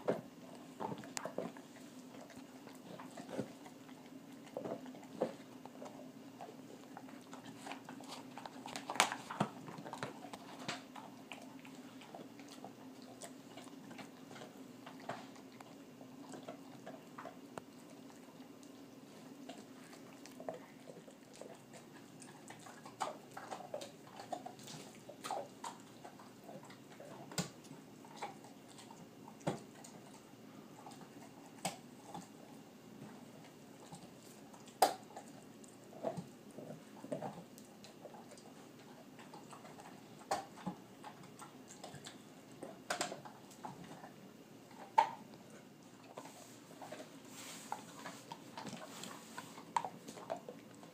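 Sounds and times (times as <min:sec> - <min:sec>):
dog gnawing bone: 0:00.0 - 0:50.9.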